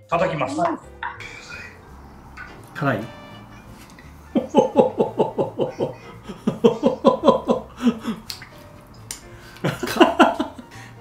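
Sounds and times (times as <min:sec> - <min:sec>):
men laughing: 0:01.2 - 0:02.6, 0:04.1 - 0:08.3, 0:09.5 - 0:11.0.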